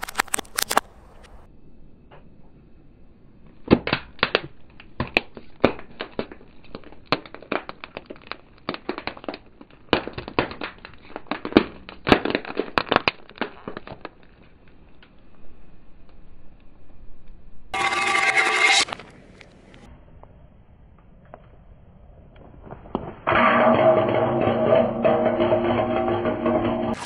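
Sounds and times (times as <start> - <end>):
plastic tubs cracking under tyre: 3.7 - 14.6.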